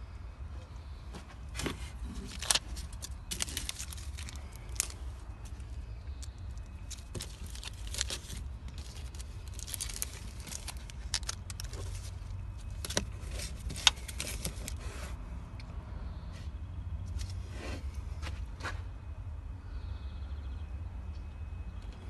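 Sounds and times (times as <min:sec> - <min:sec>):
paper rustling and crinkling: 0:01.6 - 0:15.1.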